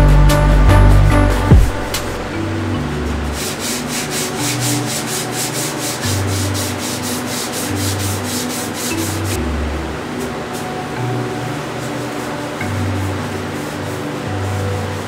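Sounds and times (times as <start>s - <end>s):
sanding sponge rasping: 3.3s - 9.4s.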